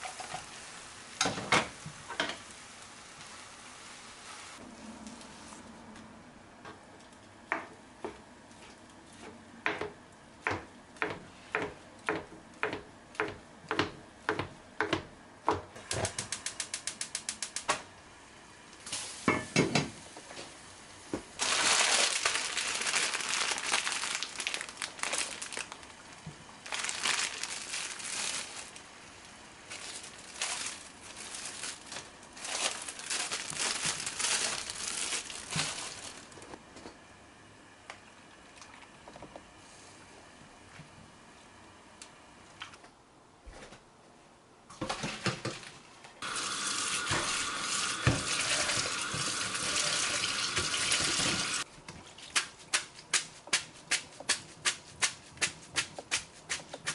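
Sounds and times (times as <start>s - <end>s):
boiling water crackling hiss: 0.0s - 4.6s, 46.2s - 51.7s.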